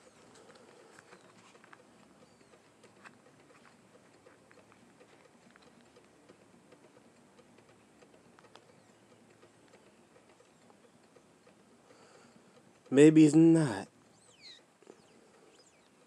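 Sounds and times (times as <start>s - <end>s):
light clicks: 0.0s - 13.1s.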